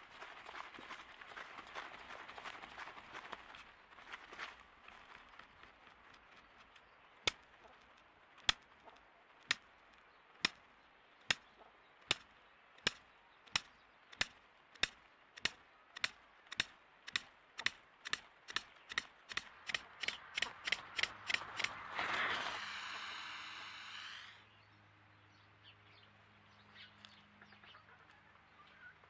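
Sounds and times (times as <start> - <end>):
bird clicking: 11.2 - 21.8.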